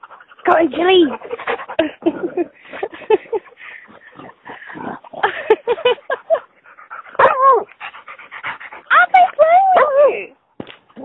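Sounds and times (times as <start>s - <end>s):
dogs snuffling: 0.0s - 9.9s
dog yips: 7.2s - 7.7s.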